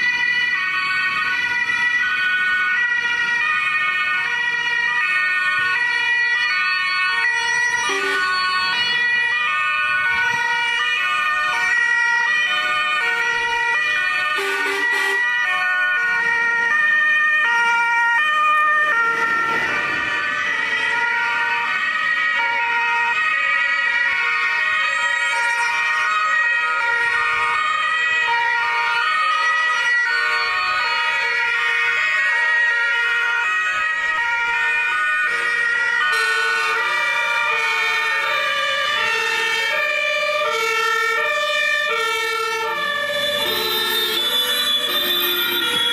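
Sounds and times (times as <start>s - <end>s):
vehicle engine and tyre noise: 0.0s - 23.2s, 33.7s - 45.9s
two-tone emergency sirens: 0.0s - 45.9s.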